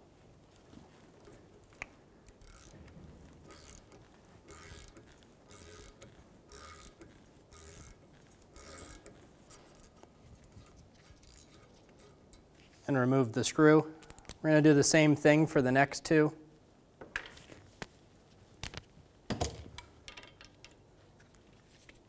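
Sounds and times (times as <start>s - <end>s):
hand ratchet clicking: 1.2s - 12.6s.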